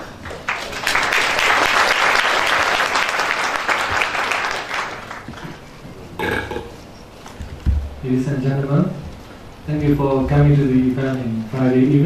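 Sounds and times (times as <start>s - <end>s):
audience applauding: 0.0s - 5.7s.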